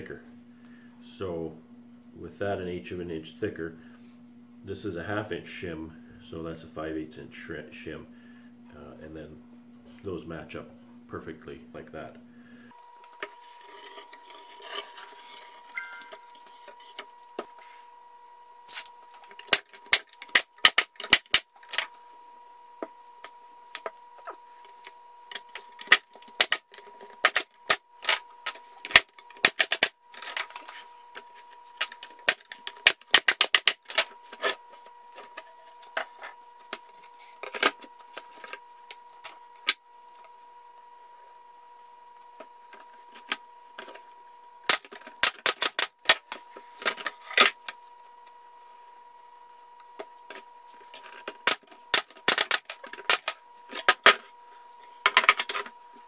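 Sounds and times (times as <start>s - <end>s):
faint steady whine: 0.0s - 56.0s
wood strips clicking and knocking: 19.3s - 21.9s, 25.3s - 34.6s, 44.6s - 47.7s, 50.0s - 54.2s
pneumatic nailer shots: 19.5s - 21.5s.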